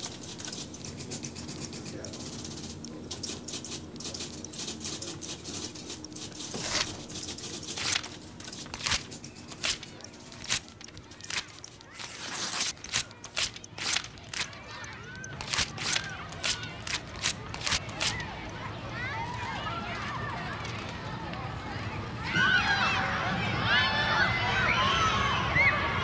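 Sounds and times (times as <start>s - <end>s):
paper being torn: 0.0s - 18.4s.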